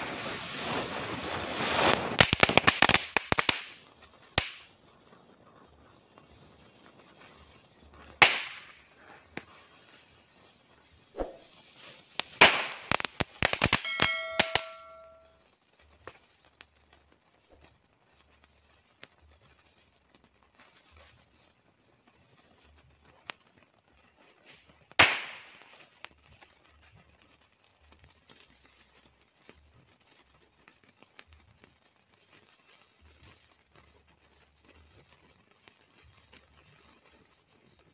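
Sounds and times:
firecracker bang: 0.0s - 3.8s, 8.1s - 9.0s, 11.2s - 15.3s, 25.0s - 25.7s
firework fizzing burst: 0.0s - 15.3s, 20.6s - 26.9s
firecrackers popping and cracking: 0.0s - 37.9s
brief ringing tone: 13.8s - 15.3s.

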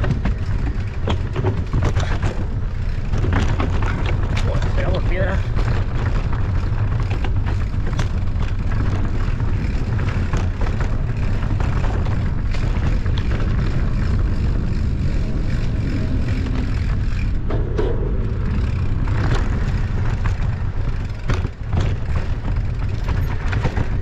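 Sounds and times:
mountain bike rattling over rough ground: 0.0s - 24.0s
wind buffeting microphone: 0.0s - 24.0s.

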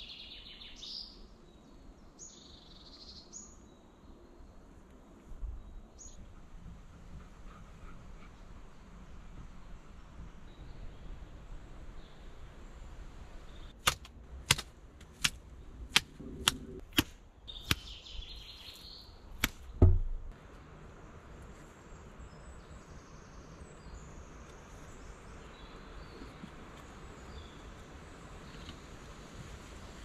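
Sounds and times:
faint birds or insects: 0.0s - 13.8s, 15.4s - 30.0s
sharp knocks: 19.4s - 20.3s
heavy thump: 19.8s - 20.3s.

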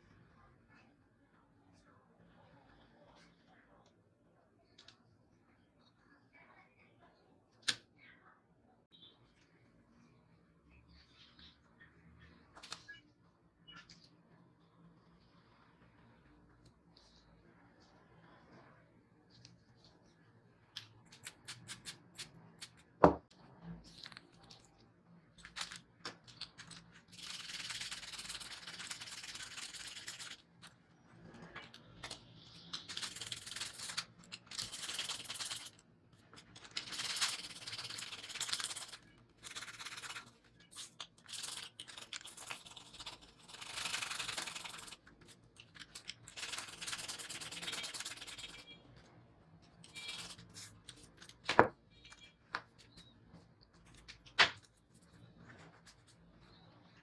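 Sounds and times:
toothbrush scrubbing metal: 46.3s - 48.7s.

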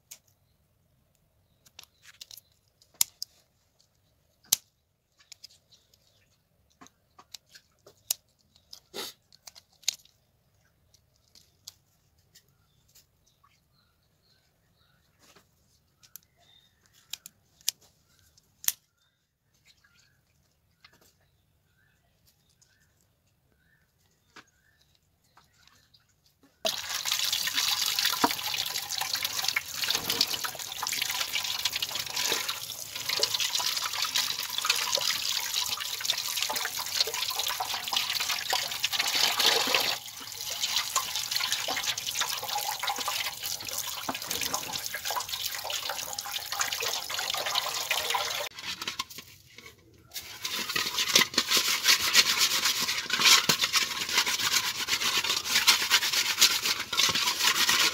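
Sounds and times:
tap water running into metal pot: 26.7s - 48.5s
hands washing fish in water: 26.7s - 49.3s, 50.1s - 57.9s
hands scrubbing fish against pot: 26.7s - 57.9s.

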